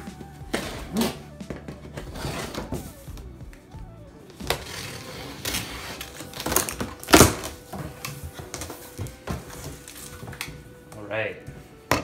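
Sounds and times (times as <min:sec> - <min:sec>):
cardboard scraping and ripping: 0:00.4 - 0:03.1, 0:04.4 - 0:10.4.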